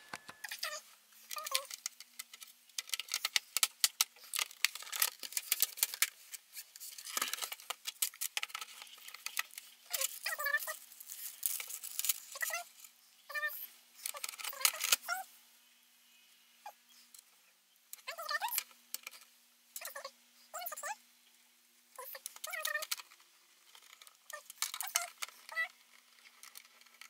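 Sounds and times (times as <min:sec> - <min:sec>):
plastic parts clicking and knocking: 0:00.0 - 0:12.6, 0:14.0 - 0:15.1, 0:18.0 - 0:19.9, 0:22.0 - 0:27.0.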